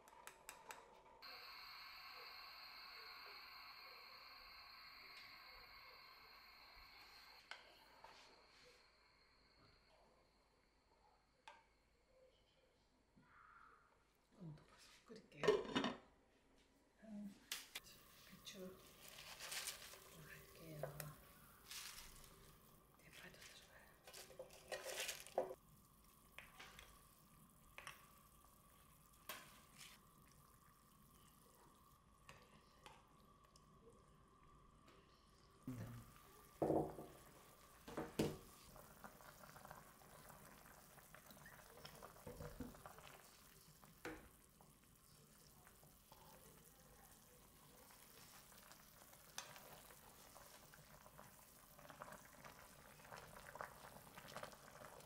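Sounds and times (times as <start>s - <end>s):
wooden utensil stirring a pot: 24.1s - 25.6s
soup bubbling in a pan: 24.1s - 34.7s, 35.3s - 55.0s.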